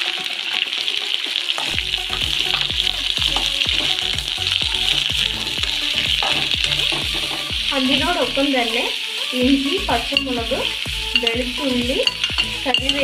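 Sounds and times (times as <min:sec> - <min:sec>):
onions sizzling in hot oil: 0:00.0 - 0:13.0
metal spoon scraping pan: 0:10.1 - 0:13.0.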